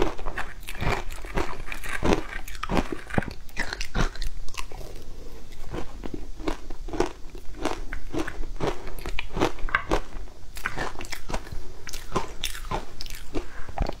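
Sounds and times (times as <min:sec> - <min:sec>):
icy crunches of chewing: 0:00.0 - 0:14.0.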